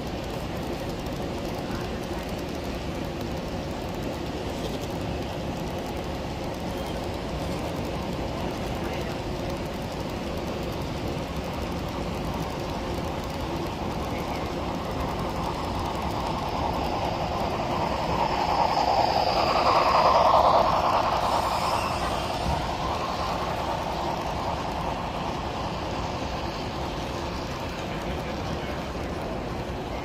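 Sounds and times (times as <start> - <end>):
model train rolling past: 0.0 - 30.0.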